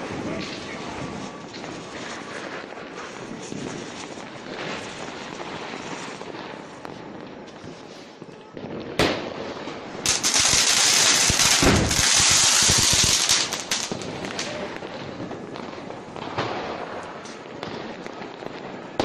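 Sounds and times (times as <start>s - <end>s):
crackling firework hiss: 0.0s - 19.0s
firework bang: 8.9s - 18.0s
deep firework thump: 11.4s - 14.4s.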